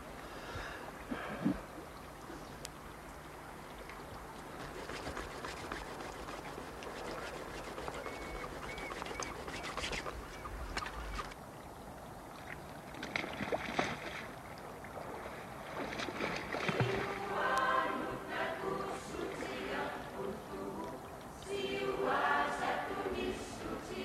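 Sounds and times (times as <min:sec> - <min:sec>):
water splashing and sloshing: 0:00.0 - 0:24.0
choir singing: 0:16.8 - 0:24.0.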